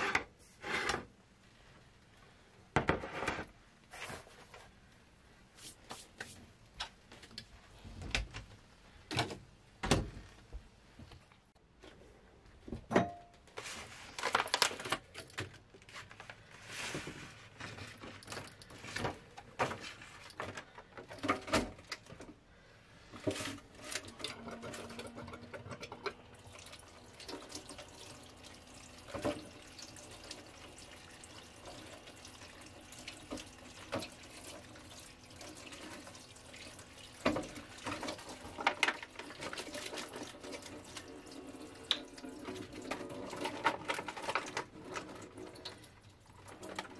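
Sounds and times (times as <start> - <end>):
tap water running into sink: 25.0 - 46.9.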